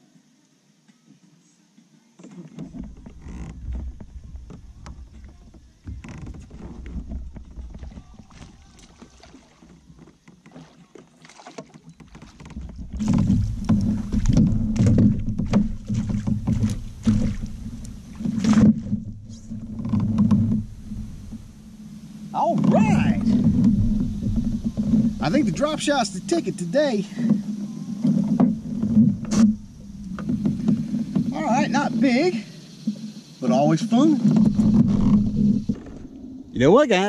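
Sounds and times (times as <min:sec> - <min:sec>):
knocking against kayak hull: 0:02.6 - 0:21.8, 0:22.4 - 0:32.2
fish splashing: 0:02.7 - 0:32.3.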